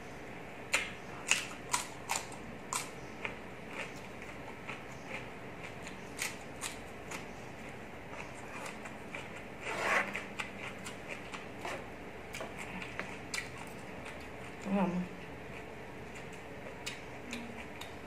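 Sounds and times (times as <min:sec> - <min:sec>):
chewing crunchy vegetable: 0:00.7 - 0:18.0.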